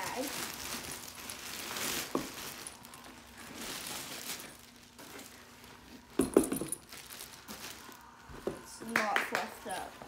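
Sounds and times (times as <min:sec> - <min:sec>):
plastic wrapping and fabric rustling: 0:00.0 - 0:10.0
bag knocking on floor: 0:02.1 - 0:02.5, 0:06.1 - 0:07.0.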